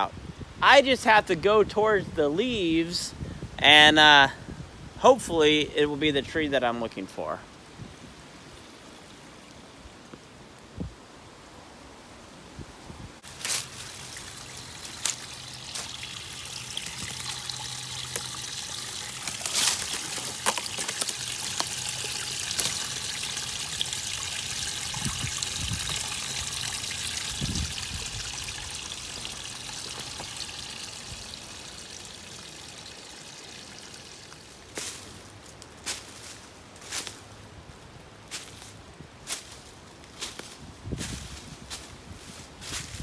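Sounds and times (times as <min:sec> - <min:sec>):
water splashing into pool: 0:13.2 - 0:35.0
waterfall trickling over rocks: 0:13.2 - 0:37.2.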